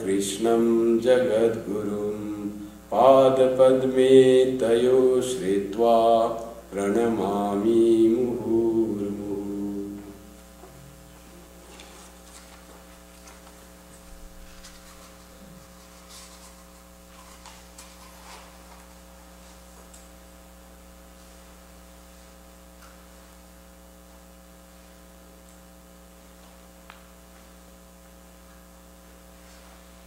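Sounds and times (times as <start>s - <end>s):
electrical mains hum: 0.0s - 30.0s
faint rustles and knocks: 10.6s - 19.9s.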